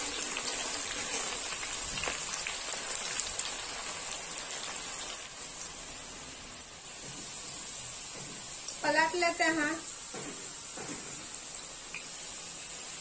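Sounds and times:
deep-frying sizzle and crackle: 0.0s - 13.0s.

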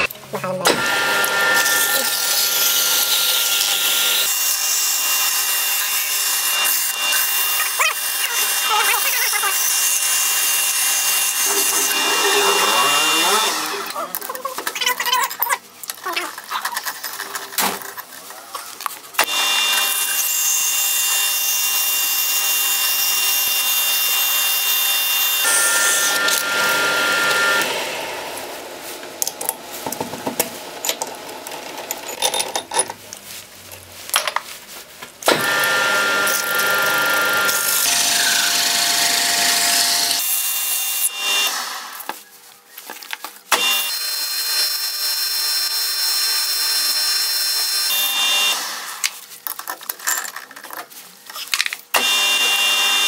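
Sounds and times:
metal lathe whining: 0.7s - 8.7s, 9.3s - 14.0s, 19.2s - 28.4s, 52.0s - 53.0s.

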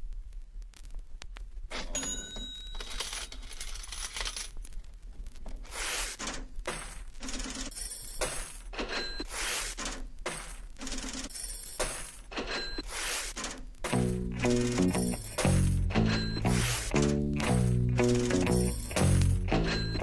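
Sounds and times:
metallic jingling and chiming: 14.0s - 16.5s, 17.4s - 20.0s.

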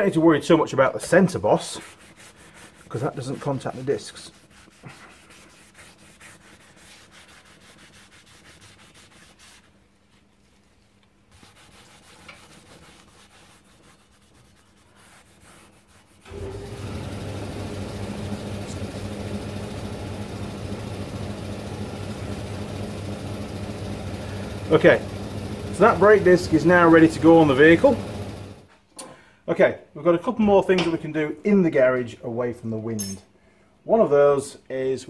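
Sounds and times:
cloth rag rubbing metal disc: 1.0s - 16.3s, 24.6s - 28.4s
engine-like running hum: 16.4s - 28.6s.

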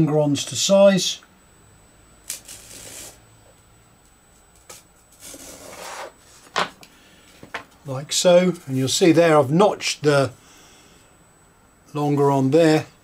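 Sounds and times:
fine saw cutting wood: 5.2s - 6.2s.

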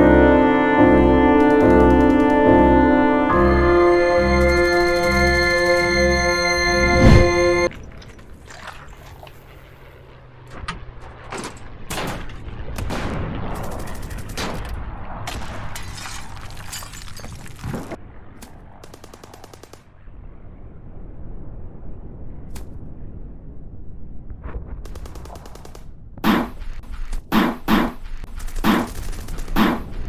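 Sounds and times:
automatic gunfire bursts: 28.3s - 29.9s.

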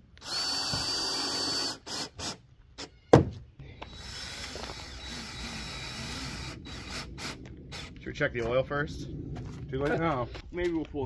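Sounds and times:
cordless drill whining: 0.2s - 2.9s, 3.8s - 8.0s.

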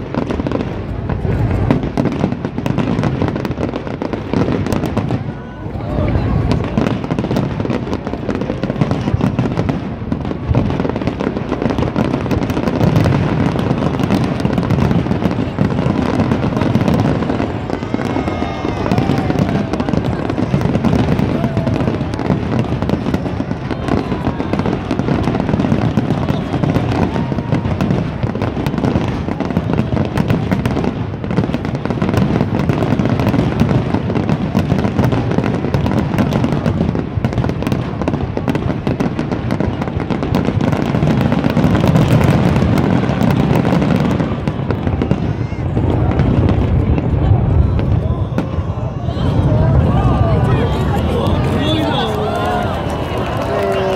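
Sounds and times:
fireworks booming and crackling: 0.0s - 53.9s.

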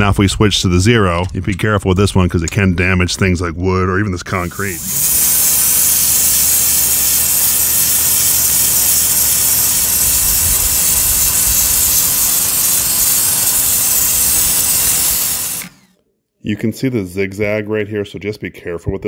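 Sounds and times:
steady hum: 4.3s - 15.8s
pressure washer jet hissing: 4.3s - 15.9s.

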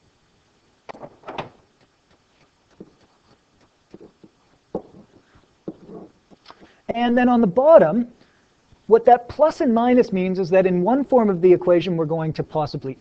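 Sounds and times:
stylus tapping on tablet screen: 1.8s - 6.8s.

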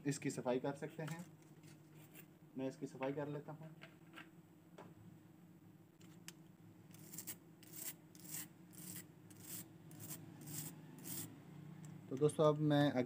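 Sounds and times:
brush scrubbing circuit board: 6.9s - 11.3s.

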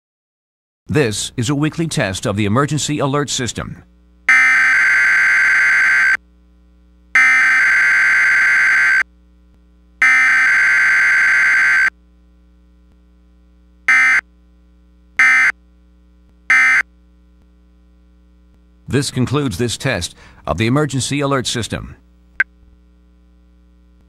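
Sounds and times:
screeching two-tone data bursts: 4.3s - 6.2s, 7.2s - 9.0s, 10.0s - 11.9s, 13.9s - 14.2s, 15.2s - 15.5s, 16.5s - 16.8s
short data tone bursts: 10.0s - 11.9s, 13.9s - 14.2s, 15.2s - 15.6s, 16.5s - 16.9s.

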